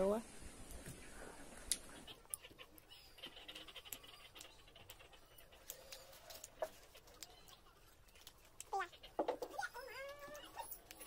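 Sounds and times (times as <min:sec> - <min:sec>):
soft chewing: 0:00.7 - 0:09.1.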